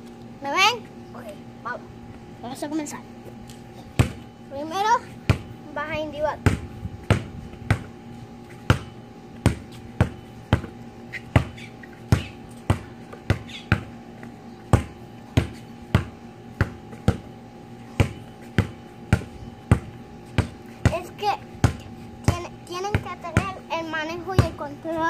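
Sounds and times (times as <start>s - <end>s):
basketball dribbling: 4.0s - 4.2s, 6.4s - 8.0s, 8.6s - 14.0s, 14.7s - 17.3s, 18.0s - 23.6s, 24.4s - 24.6s.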